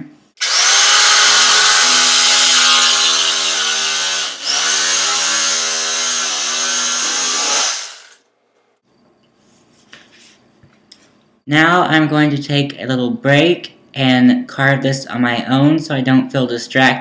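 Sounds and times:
electric knife buzzing: 0:00.4 - 0:08.3.

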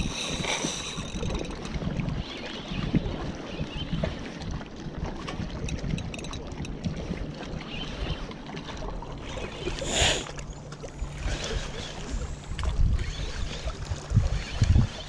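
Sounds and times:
wind rumbling on microphone: 0:00.0 - 0:10.1, 0:11.0 - 0:15.0.

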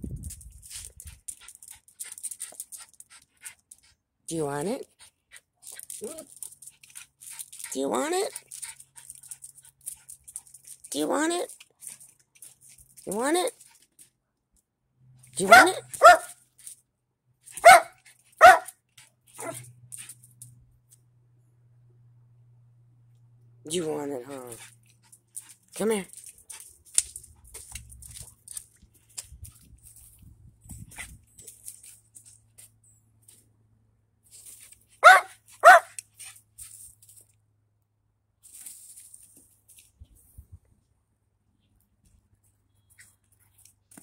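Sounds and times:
small dog barking: 0:15.4 - 0:16.4, 0:17.6 - 0:18.8, 0:19.4 - 0:19.6, 0:35.0 - 0:36.0.

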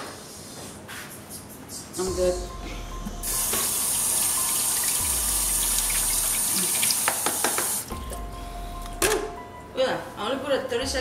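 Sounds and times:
tap running into sink: 0:05.6 - 0:07.9.

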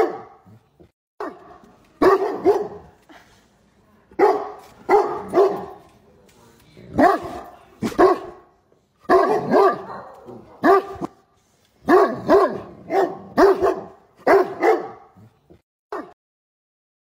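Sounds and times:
large dog barking: 0:00.0 - 0:00.6, 0:01.2 - 0:03.0, 0:04.2 - 0:05.8, 0:06.9 - 0:11.2, 0:11.8 - 0:16.2.

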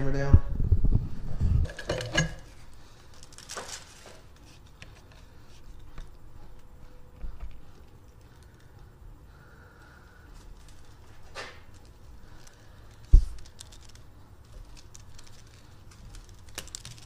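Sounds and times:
handling knocks and clatter: 0:01.6 - 0:02.5.

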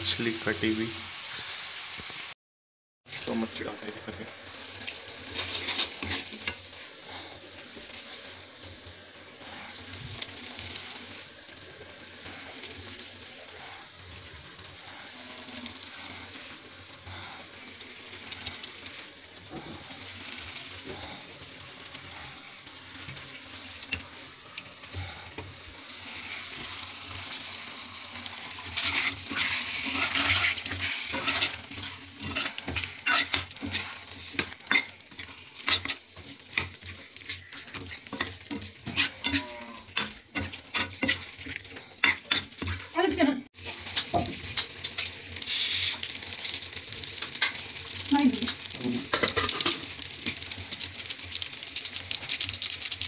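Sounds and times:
curry sizzling in pan: 0:00.0 - 0:02.4, 0:03.0 - 0:53.0
metal spoon scraping pan: 0:05.3 - 0:06.7, 0:28.5 - 0:43.2.

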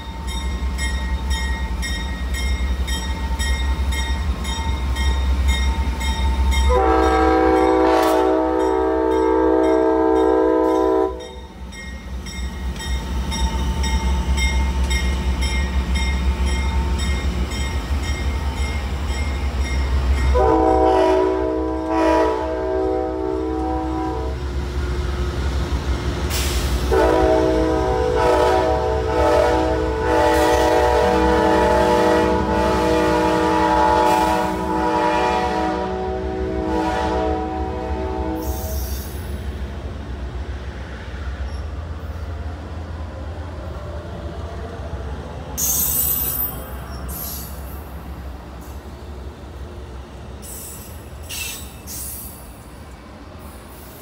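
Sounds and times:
train horn blasts: 0:06.6 - 0:11.4, 0:20.2 - 0:24.4, 0:26.8 - 0:38.9.

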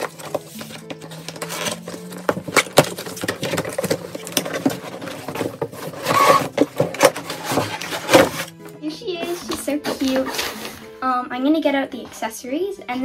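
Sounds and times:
cardboard box clicks and rustles: 0:00.0 - 0:08.5
tray scraping out of box: 0:03.3 - 0:08.5.

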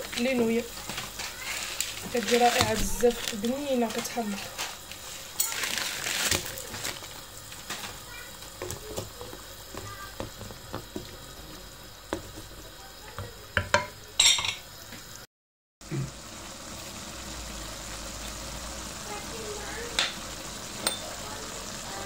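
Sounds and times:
broth bubbling in a pan: 0:00.0 - 0:15.2, 0:15.8 - 0:22.0
loud crackle: 0:00.8 - 0:09.0.

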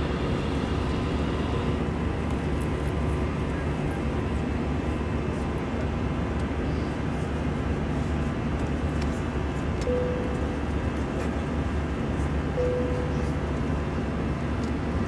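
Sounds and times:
aircraft cabin noise: 0:00.0 - 0:15.0
short steady tone: 0:09.8 - 0:10.6, 0:12.5 - 0:13.6.

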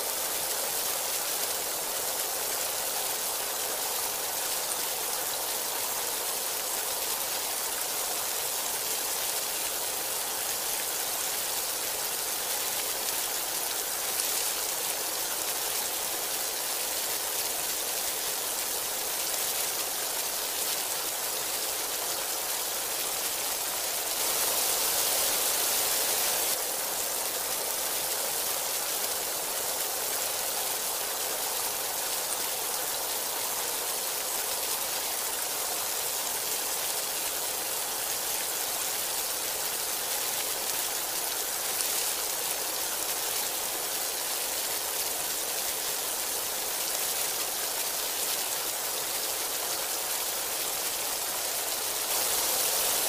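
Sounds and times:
heavy rain: 0:00.0 - 0:53.0.

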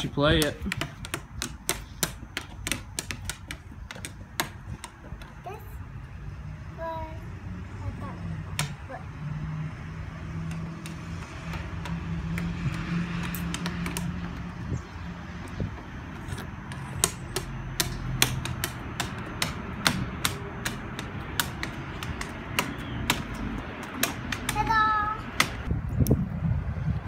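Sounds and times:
stick tapping on wooden slats: 0:00.2 - 0:05.4, 0:08.5 - 0:08.8, 0:10.4 - 0:14.5, 0:15.4 - 0:25.7.

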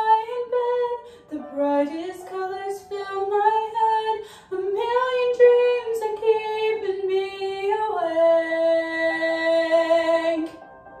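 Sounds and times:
woman singing: 0:00.0 - 0:10.6.

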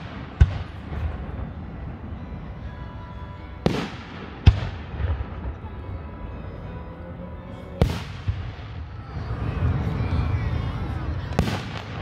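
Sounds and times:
small firework crack: 0:11.4 - 0:12.0.

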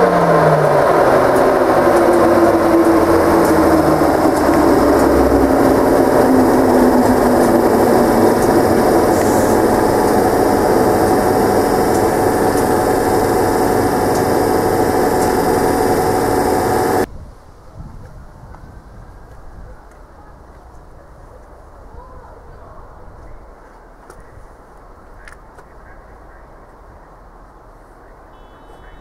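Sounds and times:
electric train humming: 0:00.0 - 0:17.1, 0:28.3 - 0:29.0.

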